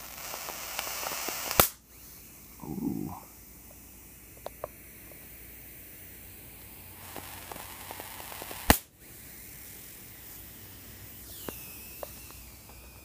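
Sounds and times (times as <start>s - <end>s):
electrical arcing hiss and snaps: 0.0s - 13.0s
loud sharp arc crack: 0.8s - 1.8s.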